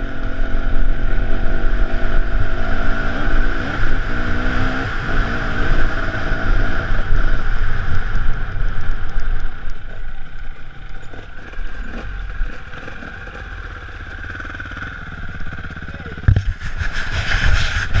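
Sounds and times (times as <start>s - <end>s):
motorcycle engine revving and idling: 0.0s - 18.0s.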